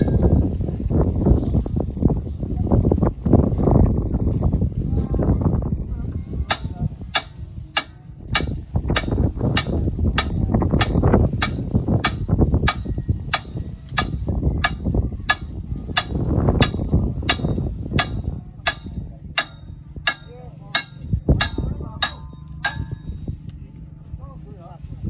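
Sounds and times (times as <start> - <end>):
tractor diesel engine rumbling: 0.0 - 25.0
sharp ticking: 6.5 - 23.2.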